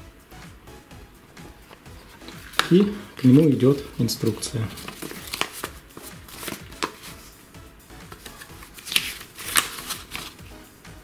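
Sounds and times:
paper booklet rustling: 1.7s - 7.3s, 8.1s - 10.5s.

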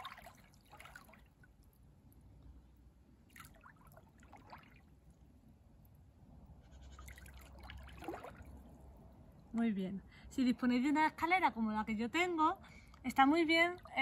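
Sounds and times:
pool water sloshing: 0.0s - 2.4s, 3.0s - 6.0s, 7.0s - 9.5s
water swishes: 0.0s - 9.5s.

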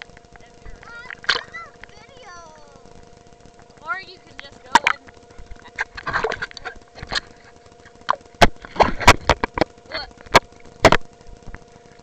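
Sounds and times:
faint steady hum: 0.0s - 12.0s
water sloshing and splashing: 0.7s - 2.2s.

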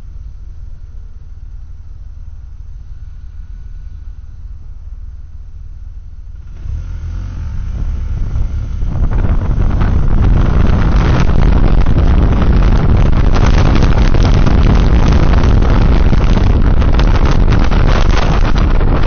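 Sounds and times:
motorcycle engine accelerating: 0.0s - 19.0s
wind and road noise: 0.0s - 19.0s.

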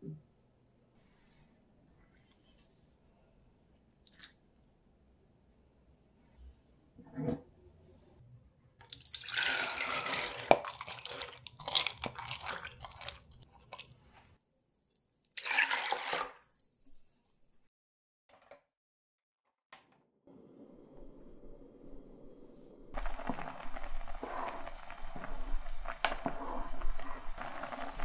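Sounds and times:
beans and water pouring: 8.8s - 17.7s.

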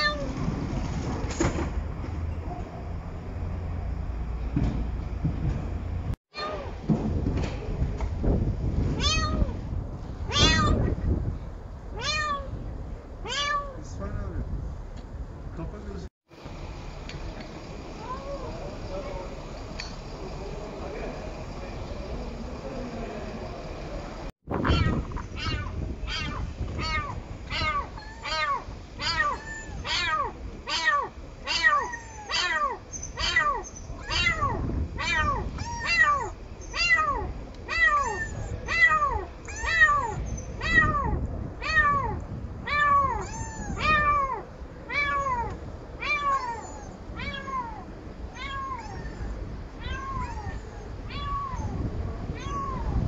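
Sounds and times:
kitten meowing: 0.0s - 0.4s, 9.0s - 9.6s, 10.3s - 10.9s, 12.0s - 12.6s, 13.2s - 13.8s, 24.6s - 53.0s.

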